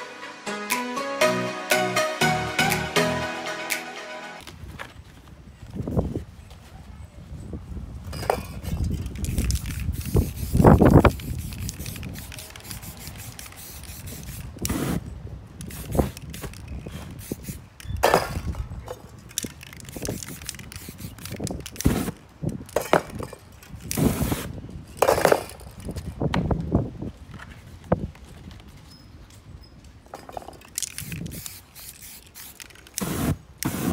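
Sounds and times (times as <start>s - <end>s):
spray paint can hissing: 9.1s - 17.7s, 19.4s - 22.2s, 30.8s - 33.9s.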